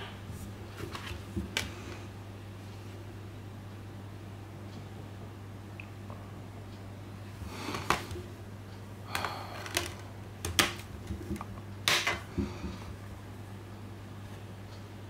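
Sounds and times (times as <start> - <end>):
steady low hum: 0.0 - 15.0
plastic case clicks and knocks: 9.2 - 12.8.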